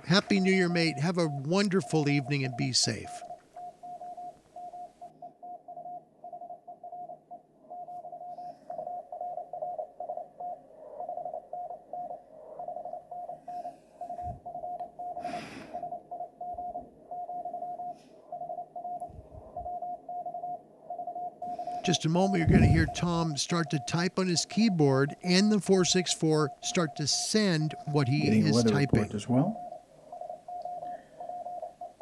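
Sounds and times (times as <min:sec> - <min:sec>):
morse code beeps: 0:00.0 - 0:05.0, 0:21.4 - 0:32.0.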